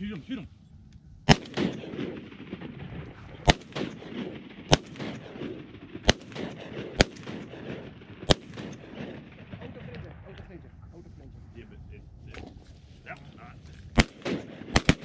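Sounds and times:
shotgun shots: 1.3s - 10.3s, 13.9s - 15.0s.

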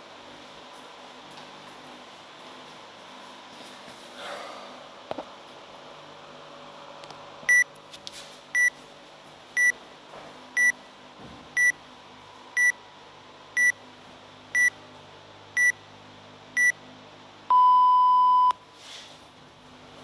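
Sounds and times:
high electronic timer beeps: 15.6s - 15.8s, 17.5s - 18.6s.

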